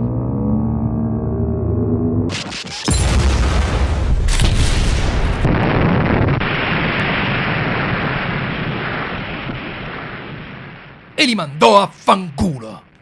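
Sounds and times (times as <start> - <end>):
long rumbling after explosion: 3.0 - 11.2.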